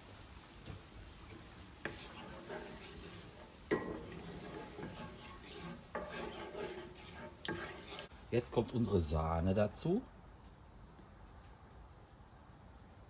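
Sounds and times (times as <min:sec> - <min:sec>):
wooden spoon stirring sauce: 0:01.2 - 0:08.1
spoon knocking against pan: 0:03.7 - 0:05.0.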